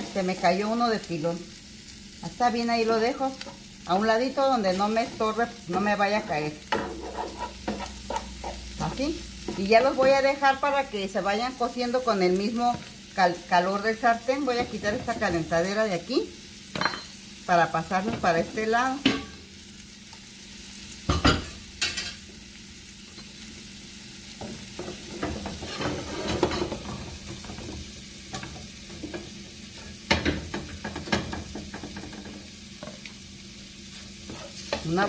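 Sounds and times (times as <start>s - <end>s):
food sizzling in a pan: 0.0s - 35.0s
metal pans clanking: 24.8s - 27.7s.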